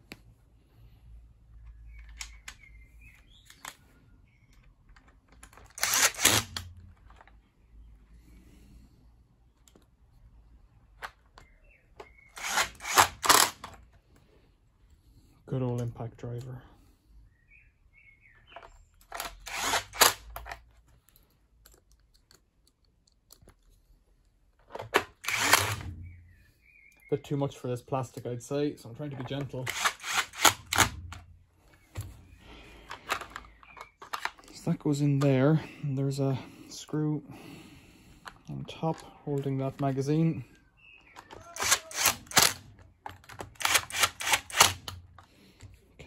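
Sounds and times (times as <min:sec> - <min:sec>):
plastic parts clicking: 0:01.5 - 0:07.6, 0:09.5 - 0:10.2, 0:10.8 - 0:14.2, 0:18.5 - 0:26.0, 0:29.0 - 0:35.4, 0:38.2 - 0:40.0, 0:41.0 - 0:45.8
impact driver driving screw: 0:05.7 - 0:06.7, 0:12.4 - 0:13.7, 0:19.1 - 0:20.6, 0:25.2 - 0:26.0, 0:29.7 - 0:31.0, 0:41.2 - 0:42.6, 0:43.5 - 0:45.0.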